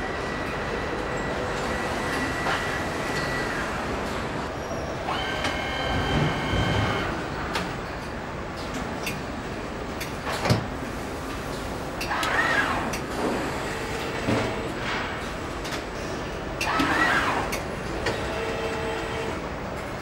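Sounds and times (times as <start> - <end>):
machine whine: 0.0 - 7.4, 12.0 - 14.8, 16.6 - 19.5
factory hum: 0.0 - 20.0
machine clicks: 12.0 - 13.1.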